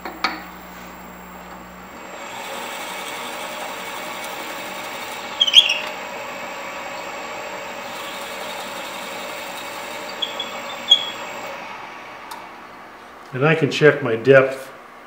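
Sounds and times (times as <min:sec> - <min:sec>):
wood lathe running: 0:00.0 - 0:13.0
drill bit cutting hiss: 0:02.0 - 0:11.6.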